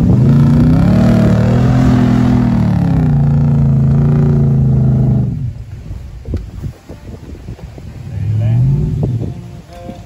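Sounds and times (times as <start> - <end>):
suv engine under load: 0.0 - 5.5.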